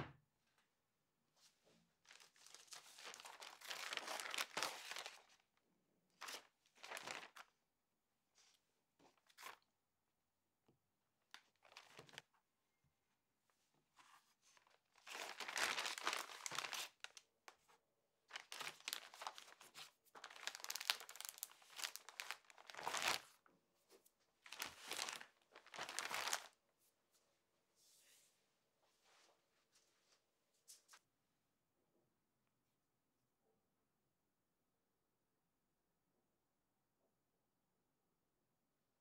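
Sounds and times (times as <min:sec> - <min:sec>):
plastic bags crinkling: 0:02.1 - 0:05.4, 0:06.2 - 0:07.4, 0:11.4 - 0:12.2, 0:14.6 - 0:17.2, 0:18.3 - 0:23.3, 0:24.4 - 0:26.6.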